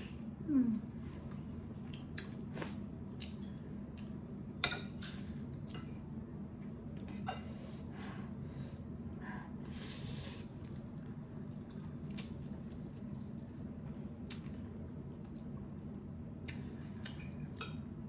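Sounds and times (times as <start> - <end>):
steady low hum: 0.0 - 18.0
wet eating sounds: 10.4 - 15.7.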